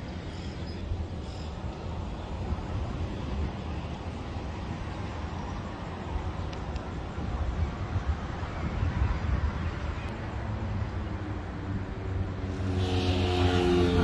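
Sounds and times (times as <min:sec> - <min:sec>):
wind buffeting microphone: 0:00.0 - 0:10.2
distant traffic rumble: 0:00.0 - 0:14.0.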